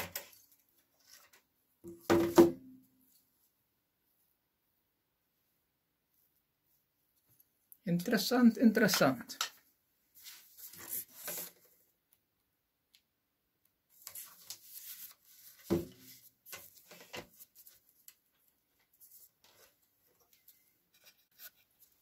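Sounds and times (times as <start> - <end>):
paper rustling: 13.9 - 20.6.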